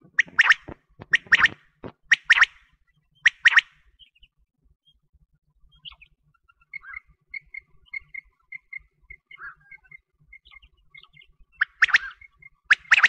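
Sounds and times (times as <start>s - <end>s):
quail chirping: 0.0s - 2.6s, 3.2s - 3.7s, 5.8s - 13.0s.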